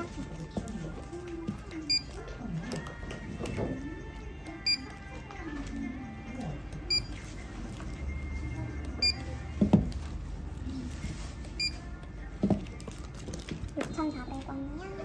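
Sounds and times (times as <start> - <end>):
barcode scanner beeping: 1.8 - 2.2, 4.6 - 5.0, 6.8 - 7.3, 9.0 - 9.4, 11.6 - 11.8.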